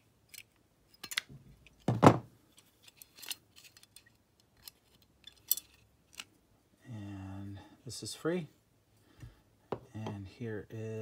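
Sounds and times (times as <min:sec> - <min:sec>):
small metal parts clicking: 0:00.2 - 0:01.9, 0:02.5 - 0:06.3
tool thump on wooden workbench: 0:01.9 - 0:02.3.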